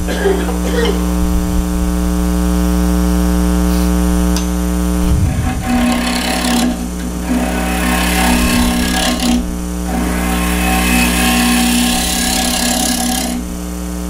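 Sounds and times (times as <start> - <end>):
lathe motor hum: 4.0 - 13.8
gouge scraping spinning wood: 5.0 - 13.6.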